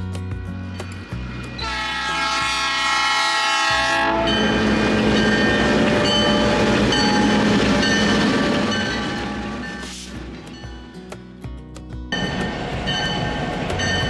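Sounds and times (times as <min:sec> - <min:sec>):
locomotive engine rumbling: 0:00.4 - 0:11.0, 0:12.1 - 0:14.0
locomotive air horn: 0:01.5 - 0:06.6
train wheels clattering: 0:04.2 - 0:10.9, 0:12.2 - 0:14.0.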